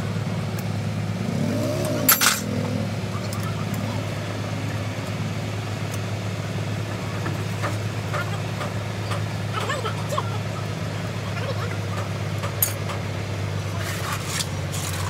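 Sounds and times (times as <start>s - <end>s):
engine humming: 0.0s - 15.0s
sharp metallic clank: 2.0s - 2.5s.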